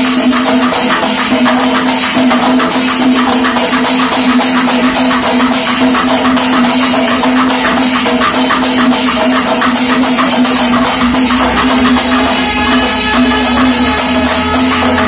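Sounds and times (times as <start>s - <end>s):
cymbals striking: 0.0s - 15.0s
drums beating fast: 0.0s - 15.0s
horns holding a note: 10.8s - 15.0s.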